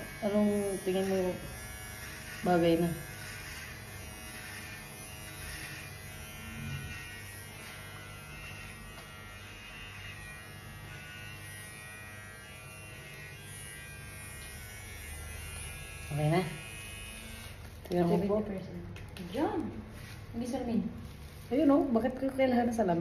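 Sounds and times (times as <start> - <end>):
hair clippers buzzing: 0.0 - 20.0.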